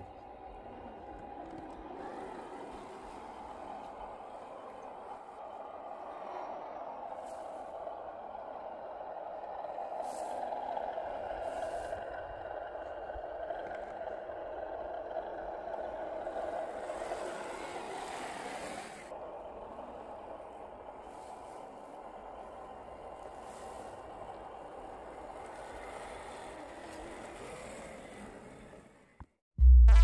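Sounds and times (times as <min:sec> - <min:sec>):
toy truck motors whining: 0:10.3 - 0:19.1, 0:21.6 - 0:29.2.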